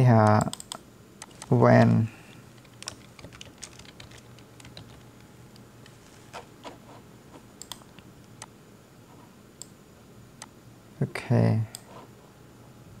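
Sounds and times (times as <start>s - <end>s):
faint low hum: 0.0s - 13.0s
keyboard and mouse clicks: 0.2s - 1.6s, 2.6s - 6.5s, 7.6s - 8.5s.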